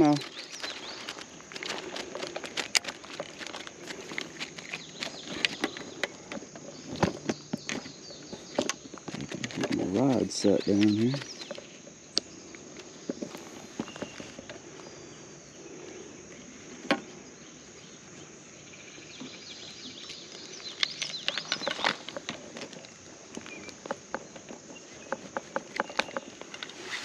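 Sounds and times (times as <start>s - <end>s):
clicking and rattling on gravel: 0.0s - 15.0s, 19.2s - 27.0s
creek hiss: 8.4s - 27.0s.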